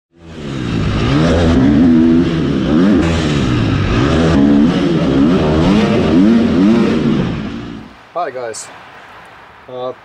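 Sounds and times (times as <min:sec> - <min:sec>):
motocross bike engine revving: 0:00.1 - 0:07.9.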